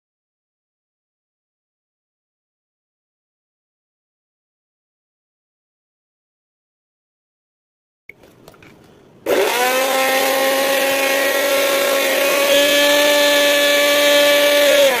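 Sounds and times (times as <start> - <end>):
mixer grinder motor whine: 9.2 - 15.0.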